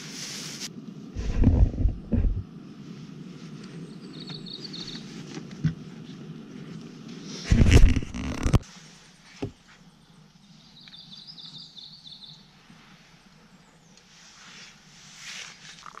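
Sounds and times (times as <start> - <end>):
low rumble and clatter: 1.2 - 2.5, 7.5 - 8.6
bird high rippling chirp: 3.8 - 5.2, 10.4 - 12.5.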